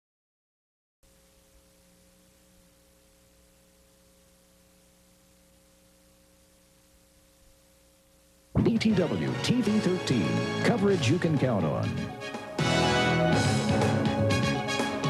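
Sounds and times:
faint electrical hum: 0:01.0 - 0:12.6
low hiss: 0:01.0 - 0:12.6.

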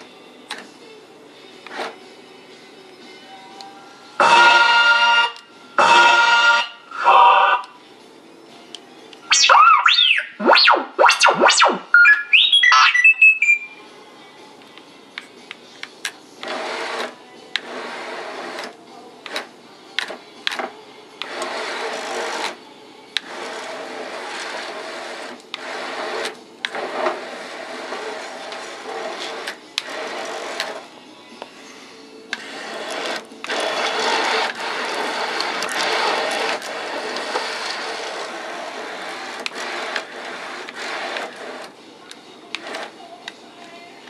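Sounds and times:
sweeping electronic whistles: 0:09.3 - 0:13.8.

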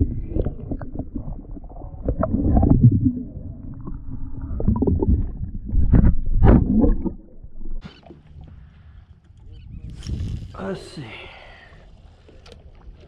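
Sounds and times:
water bubbling: 0:00.0 - 0:08.9
muffled underwater rumbling and sloshing: 0:00.0 - 0:10.6.

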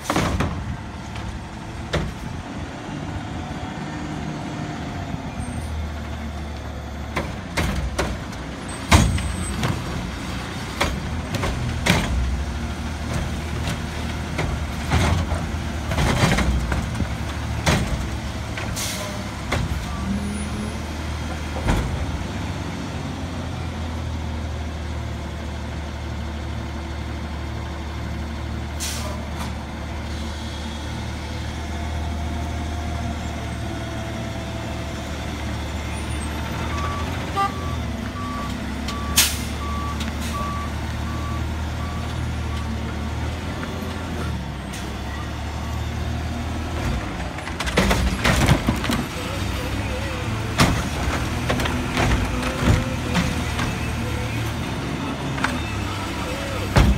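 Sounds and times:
truck engine hum: 0:00.0 - 0:56.9
knocks and bangs of bin dumping: 0:56.6 - 0:56.9.

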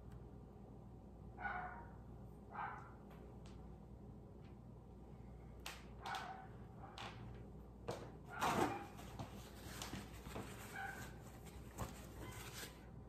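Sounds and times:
dog barking: 0:01.4 - 0:03.0, 0:06.0 - 0:07.0, 0:08.3 - 0:09.0, 0:10.7 - 0:11.2.

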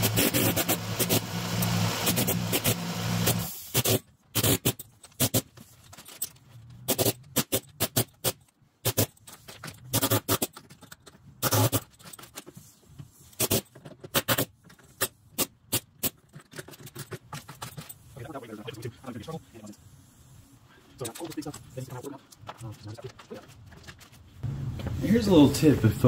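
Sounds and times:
pneumatic air hammer chipping concrete: 0:00.0 - 0:05.5, 0:06.9 - 0:09.2, 0:09.9 - 0:10.5, 0:11.4 - 0:11.9, 0:13.4 - 0:14.5.

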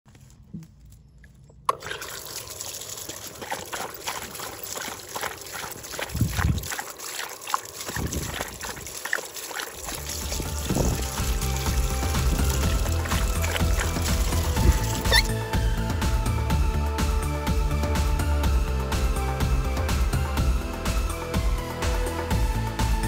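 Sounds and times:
water trickling and splashing: 0:01.6 - 0:15.6
low rumbles: 0:09.9 - 0:16.8.

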